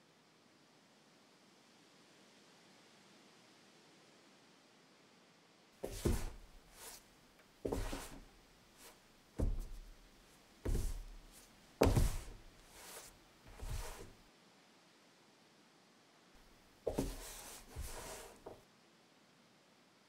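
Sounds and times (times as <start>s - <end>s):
thumps and scrapes on cardboard box: 5.8s - 7.0s, 7.7s - 8.2s, 9.4s - 9.8s, 10.7s - 11.2s, 11.8s - 14.1s, 16.9s - 18.6s.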